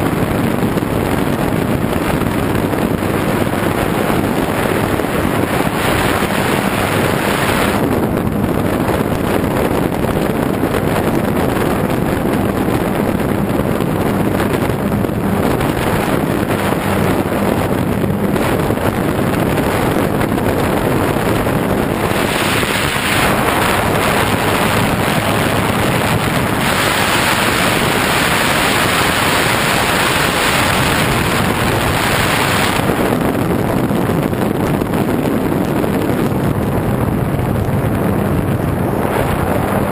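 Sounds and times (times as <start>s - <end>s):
wind rushing over camera: 0.0s - 39.9s.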